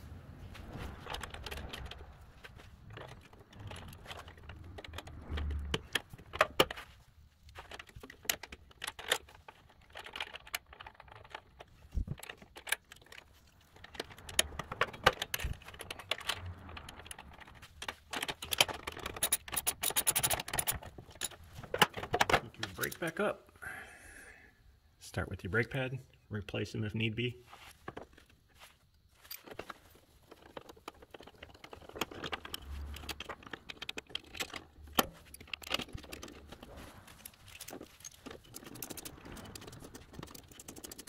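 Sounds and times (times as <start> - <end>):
metal parts clinking and rattling: 0.6 - 23.2, 27.8 - 41.0
socket wrench clicking: 18.3 - 20.9.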